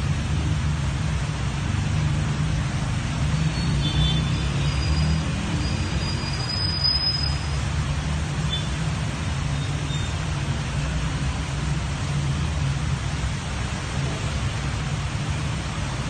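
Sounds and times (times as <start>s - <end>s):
flood water rushing: 0.0s - 16.0s
heavy rain: 0.0s - 16.0s.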